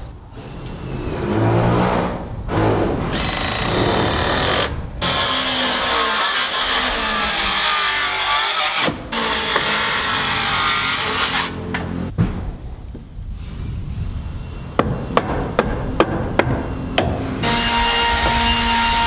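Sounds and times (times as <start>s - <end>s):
power saw cutting wood: 3.1s - 11.6s, 17.4s - 19.0s.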